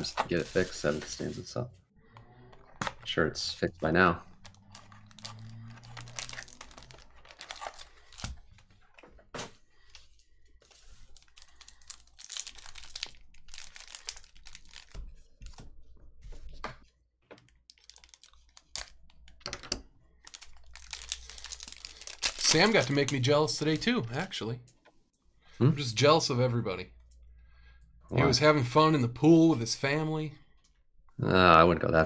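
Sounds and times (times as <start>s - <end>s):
foil wrapper crinkling and tearing: 4.4s - 9.0s, 10.6s - 15.1s, 17.4s - 19.4s, 20.2s - 23.2s.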